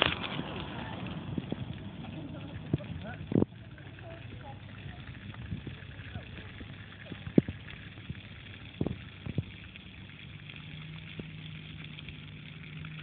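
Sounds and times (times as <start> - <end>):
fountain jets spraying water: 0.0 - 13.0
low hum: 0.0 - 13.0.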